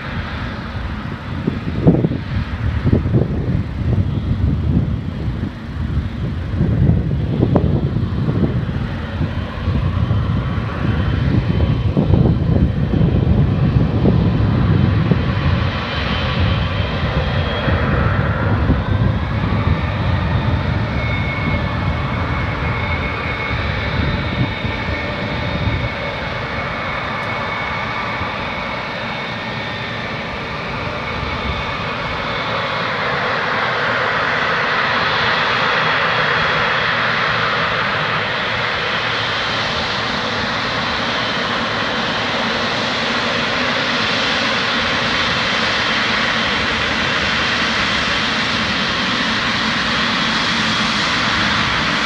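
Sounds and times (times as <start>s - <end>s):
jet engine whine: 0.0s - 52.0s
heavy low rumble: 0.6s - 32.5s.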